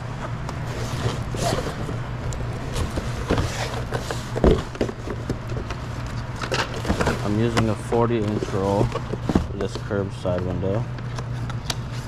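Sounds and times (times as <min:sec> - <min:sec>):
steady low hum: 0:00.0 - 0:12.0
cardboard box rustling and scraping: 0:00.6 - 0:05.9, 0:06.7 - 0:10.0.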